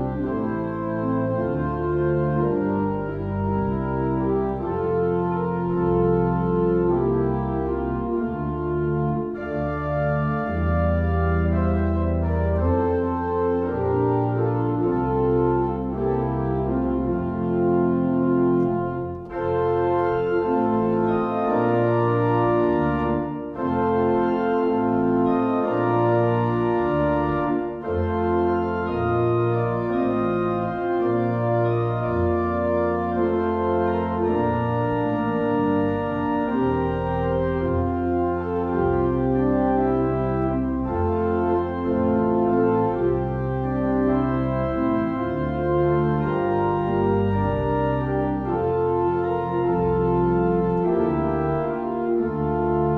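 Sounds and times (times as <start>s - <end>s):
organ playing held chords: 0.0s - 52.9s.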